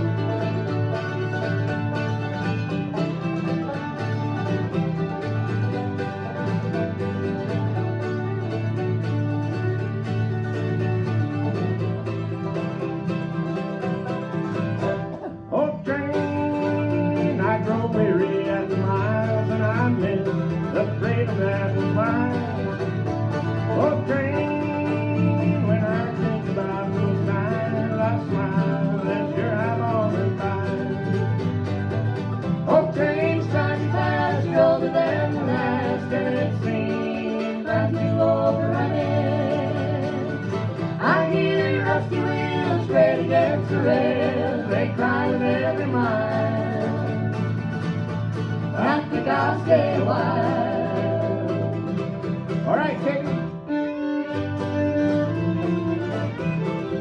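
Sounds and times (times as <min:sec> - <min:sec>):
banjo: 0:00.0 - 0:57.0
guitar: 0:00.0 - 0:57.0
person singing: 0:15.3 - 0:22.8, 0:23.6 - 0:31.4, 0:32.6 - 0:47.4, 0:48.7 - 0:53.8.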